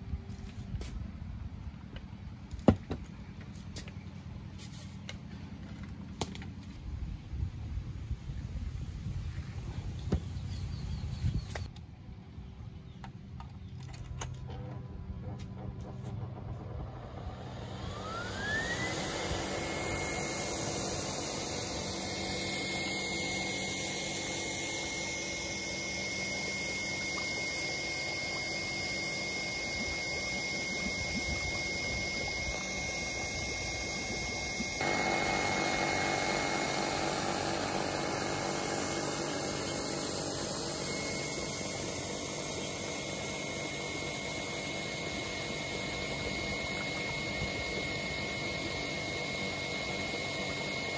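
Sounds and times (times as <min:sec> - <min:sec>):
electric blower motor whine: 0:14.5 - 0:50.9.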